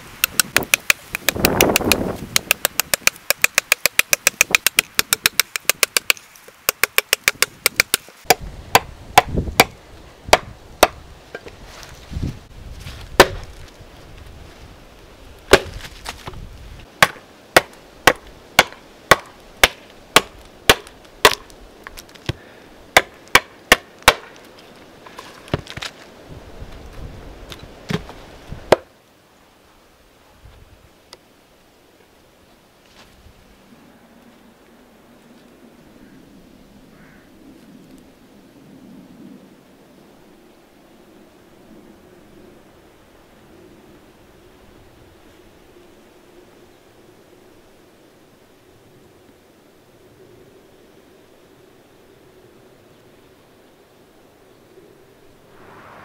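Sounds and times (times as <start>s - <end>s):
knife chopping into wood: 13.2s - 13.5s, 15.5s - 15.9s.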